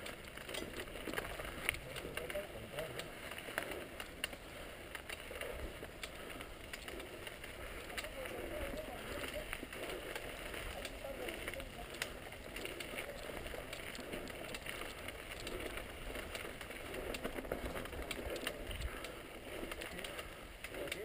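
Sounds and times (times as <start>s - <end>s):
bike clicks and rattles: 0.0s - 21.0s
tyres crunching on gravel: 0.0s - 21.0s
wind rumble on camera: 11.8s - 19.9s.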